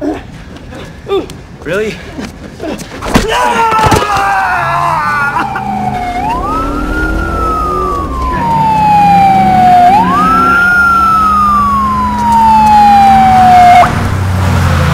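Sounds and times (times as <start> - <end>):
emergency siren wailing: 4.3 - 14.0.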